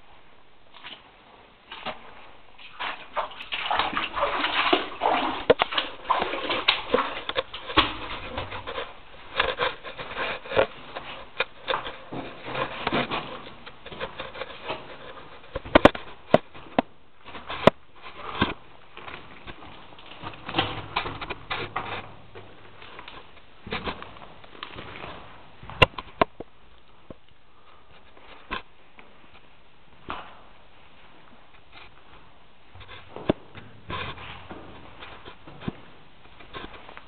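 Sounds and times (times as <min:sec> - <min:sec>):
footsteps splashing through water: 0:01.7 - 0:08.6.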